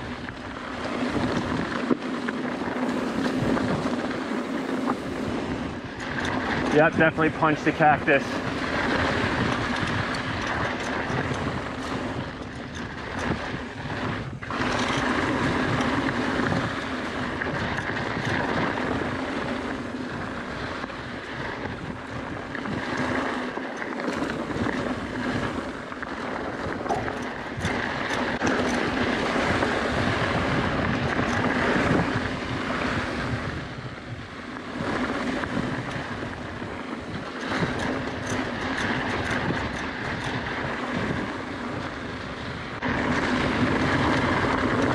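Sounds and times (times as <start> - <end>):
bike clicks and rattles: 0.0 - 44.9
wind over microphone: 0.0 - 44.9
tyres crunching on gravel: 0.3 - 12.2.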